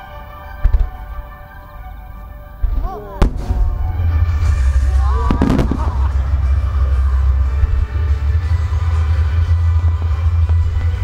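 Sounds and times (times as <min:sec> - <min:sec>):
music over loudspeakers: 0:00.0 - 0:11.0
firework shells bursting: 0:02.2 - 0:11.0.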